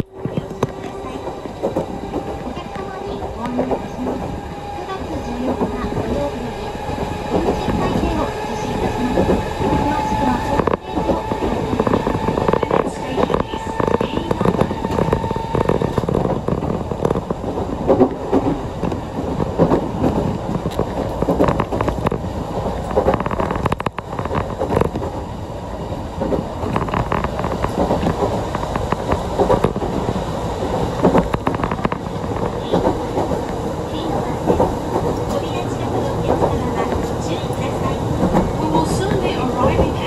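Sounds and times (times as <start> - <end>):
train wheels rumbling on rail: 0.0 - 40.0.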